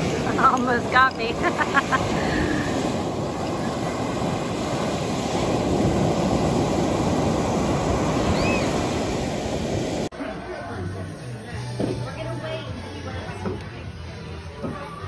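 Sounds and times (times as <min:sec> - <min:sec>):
surf breaking on beach: 0:00.0 - 0:10.1.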